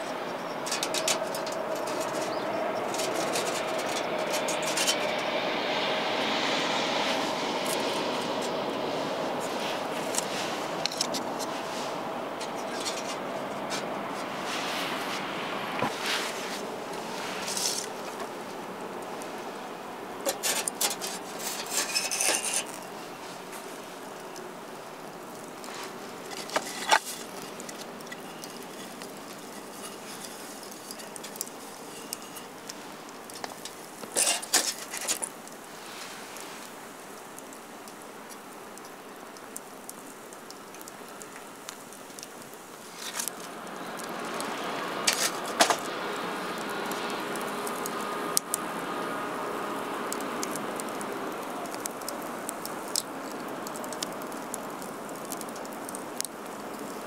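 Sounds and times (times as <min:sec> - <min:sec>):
steady hiss: 0:00.0 - 0:57.0
small gear clicking and clinking: 0:20.3 - 0:22.8.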